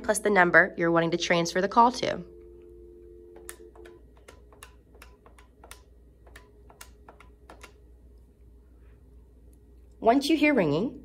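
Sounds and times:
two-tone dial tone: 0:01.7 - 0:04.1
phone keypad clicks: 0:03.3 - 0:07.8.

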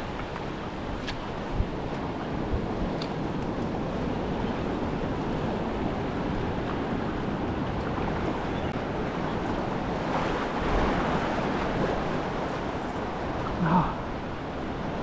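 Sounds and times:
wind on microphone: 0:00.0 - 0:15.0
ocean surf breaking: 0:08.8 - 0:15.0.

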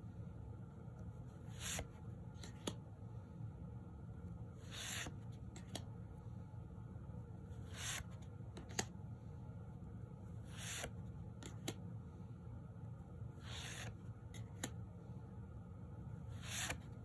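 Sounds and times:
cards sliding papery swish: 0:01.3 - 0:02.8, 0:04.6 - 0:05.9, 0:07.5 - 0:08.9, 0:10.4 - 0:11.8, 0:13.4 - 0:14.8, 0:16.2 - 0:17.0
cards clicking together: 0:08.5 - 0:08.9.

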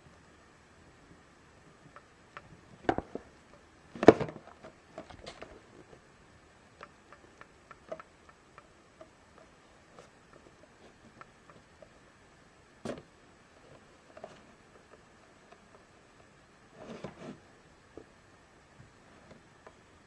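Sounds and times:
knocks and scrapes on cardboard box: 0:16.8 - 0:17.4.

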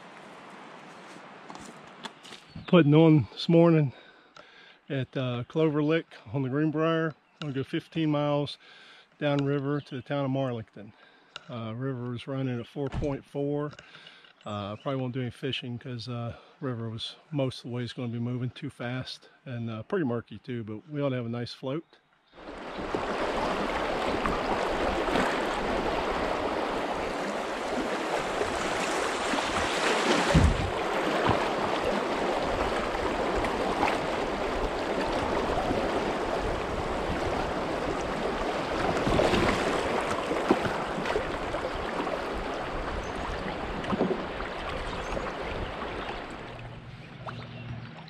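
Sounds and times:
river water rushing and splashing: 0:00.0 - 0:02.5, 0:22.4 - 0:48.0
low bumps: 0:24.1 - 0:41.0.

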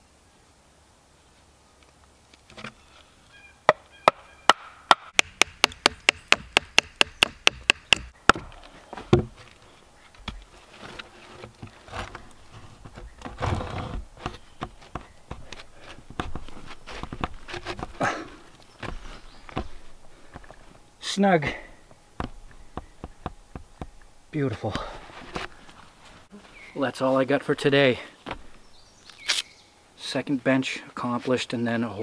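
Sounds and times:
axe striking wood: 0:03.7 - 0:09.4
log knocks and rustling: 0:05.2 - 0:20.8, 0:21.6 - 0:26.6, 0:28.2 - 0:29.4.

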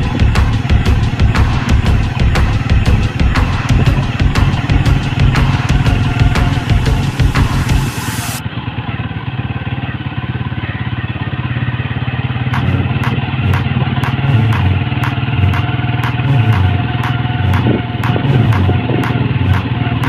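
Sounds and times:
sharp ticks: 0:00.0 - 0:07.9, 0:12.4 - 0:20.0
motorcycle engine running: 0:00.0 - 0:20.0.

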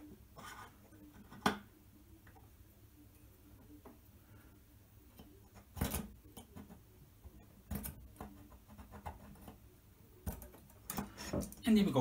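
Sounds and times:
marker pen scratching on metal: 0:00.4 - 0:01.4, 0:08.2 - 0:09.6.

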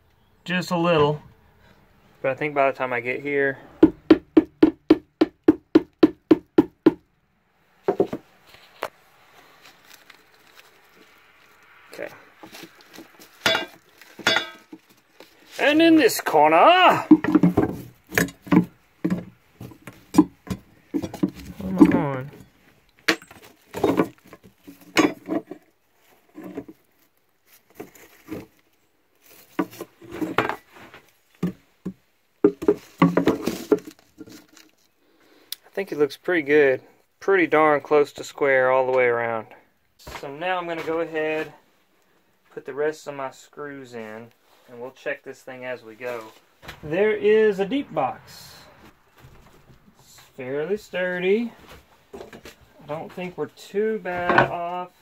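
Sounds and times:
knocks on wooden box: 0:32.4 - 0:33.9.

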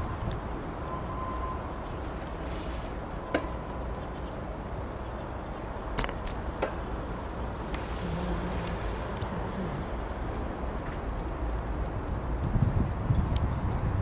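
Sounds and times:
wind noise on microphone: 0:00.0 - 0:02.6, 0:07.6 - 0:14.0.

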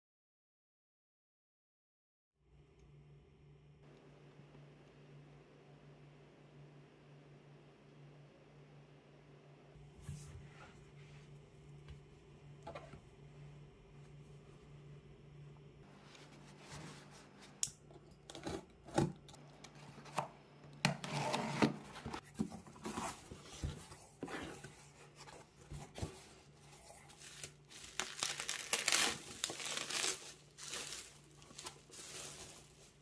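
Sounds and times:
bubble wrap crinkling: 0:26.7 - 0:33.0
packing tape tearing: 0:27.3 - 0:32.8.

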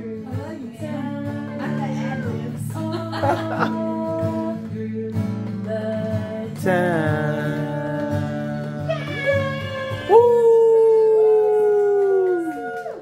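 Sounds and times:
acoustic guitar strumming: 0:00.0 - 0:10.4
person singing: 0:00.0 - 0:13.0.

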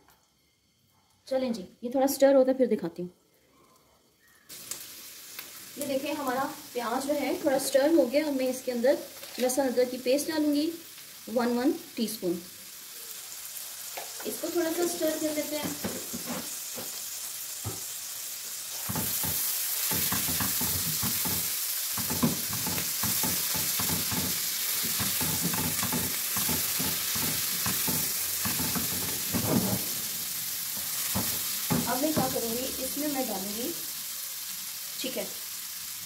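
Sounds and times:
onions sizzling in oil: 0:04.0 - 0:36.0
spatula scraping pan: 0:15.6 - 0:17.0, 0:18.8 - 0:30.1.

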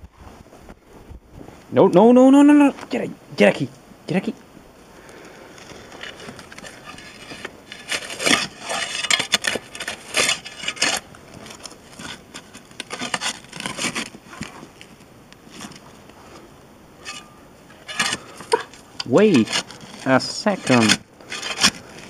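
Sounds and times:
shovel scraping dry soil: 0:05.6 - 0:14.8, 0:17.0 - 0:22.0.

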